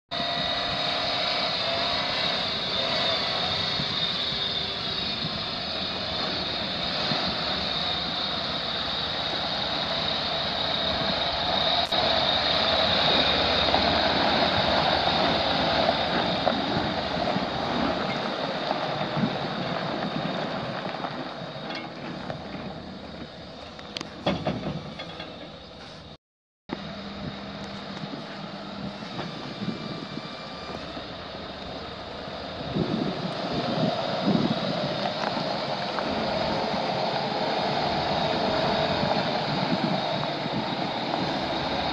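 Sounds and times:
high whine: 0:00.1 - 0:25.8
diesel truck engine running: 0:00.1 - 0:41.9.

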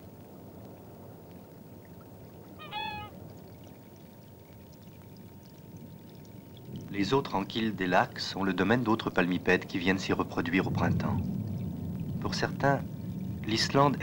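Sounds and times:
wind-ruffled lake water: 0:00.0 - 0:14.0
waterbird call: 0:02.2 - 0:04.1.

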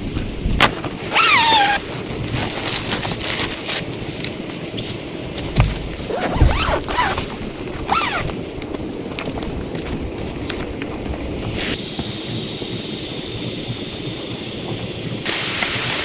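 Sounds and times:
dull thumps: 0:05.5 - 0:08.3.

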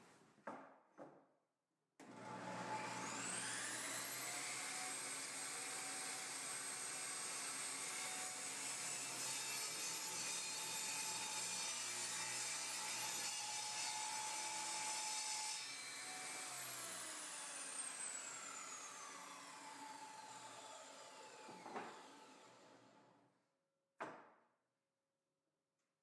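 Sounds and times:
table saw spinning down: 0:02.1 - 0:08.8, 0:16.0 - 0:23.0.

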